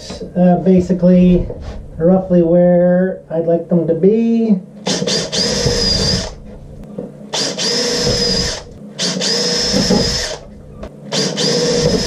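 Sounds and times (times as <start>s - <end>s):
cordless drill whining: 4.9s - 6.4s, 7.3s - 10.4s, 11.1s - 12.0s.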